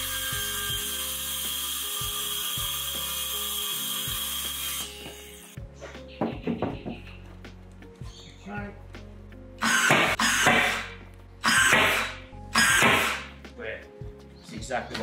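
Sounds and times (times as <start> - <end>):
circular saw cutting wood: 0.0 - 5.6, 9.6 - 13.3.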